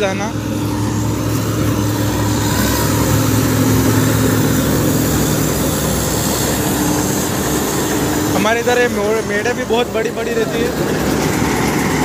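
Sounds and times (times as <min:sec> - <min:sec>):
combine harvester engine drone: 0:00.0 - 0:12.0
hiss of threshing works: 0:00.6 - 0:12.0.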